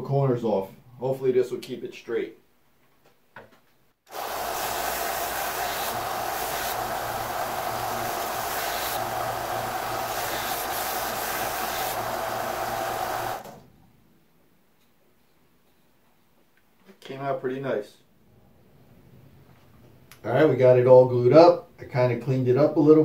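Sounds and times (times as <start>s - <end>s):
wood sanding on belt: 4.1s - 13.4s
belt sander running: 4.1s - 13.6s.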